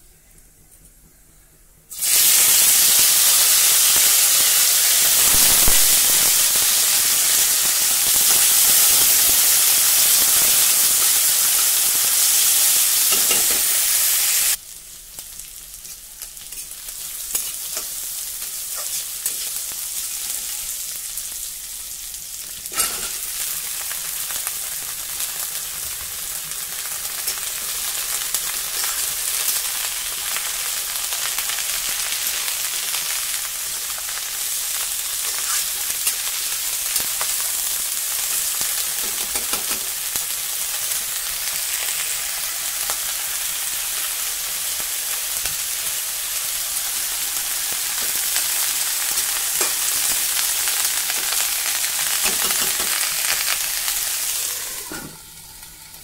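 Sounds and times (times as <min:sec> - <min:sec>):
onions sizzling in hot oil: 0:01.9 - 0:56.0.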